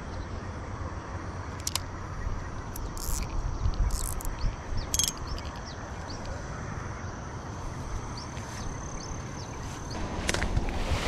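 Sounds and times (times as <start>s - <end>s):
insects calling: 0.0s - 11.0s
low rumble: 9.9s - 11.0s.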